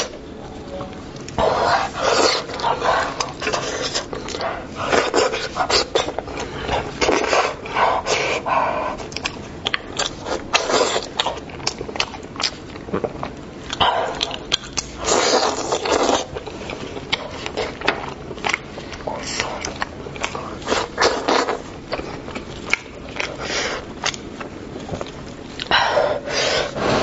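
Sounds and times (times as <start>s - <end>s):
wet chewing and lip-smacking: 8.9s - 25.8s.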